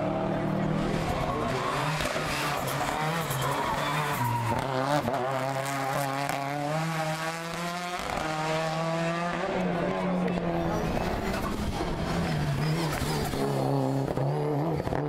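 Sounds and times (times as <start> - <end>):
race car engine revving: 0.0 - 15.0.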